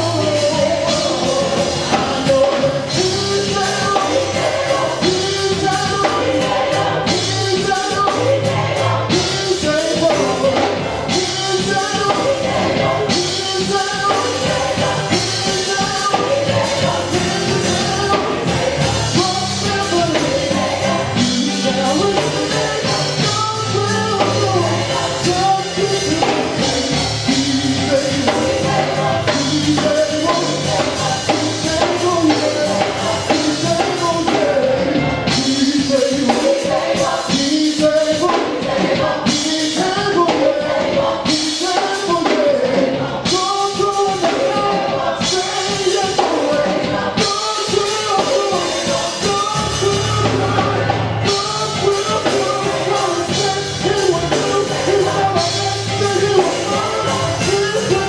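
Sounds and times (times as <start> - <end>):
bass guitar: 0.0 - 58.0
drums: 0.0 - 58.0
gospel choir singing: 0.0 - 58.0.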